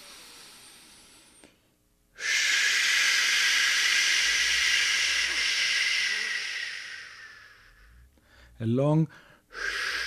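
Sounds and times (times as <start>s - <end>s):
loud shhh breath out: 0.0s - 1.5s, 2.2s - 8.6s, 9.2s - 10.0s
faint nasal in-breath: 0.0s - 10.0s.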